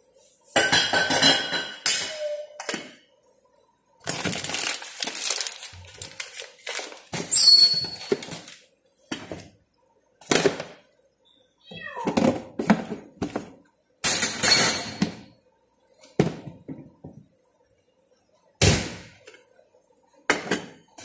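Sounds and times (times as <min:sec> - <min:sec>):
metal pot and lid clattering: 0:00.6 - 0:02.2.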